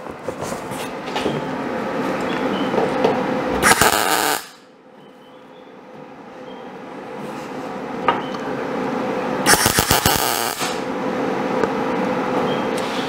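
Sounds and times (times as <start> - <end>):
steady hum: 0.0 - 5.0, 5.7 - 13.0
welding arc crackling: 3.6 - 4.6, 9.5 - 10.9.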